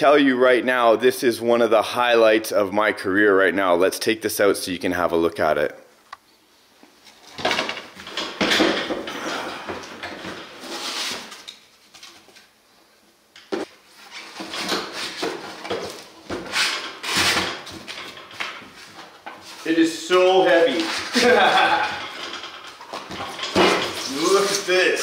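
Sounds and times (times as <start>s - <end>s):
crate clinking and scraping: 19.4s - 24.9s
crate clattering: 20.9s - 24.6s.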